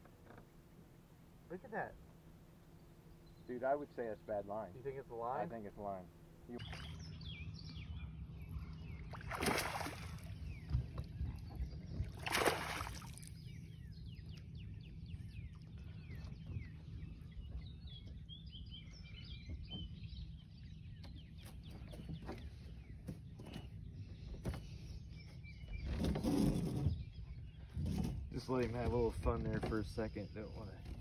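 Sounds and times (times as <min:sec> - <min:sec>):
steady low rumble: 0:00.6 - 0:21.0
small birds chirping: 0:01.5 - 0:31.0
water splashes: 0:09.1 - 0:10.5, 0:12.0 - 0:13.4.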